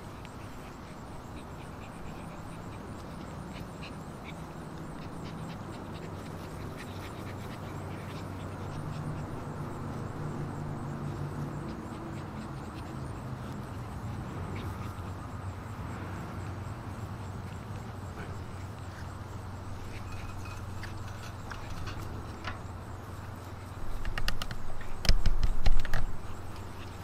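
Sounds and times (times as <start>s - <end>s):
puppies yipping: 0.2s - 15.4s.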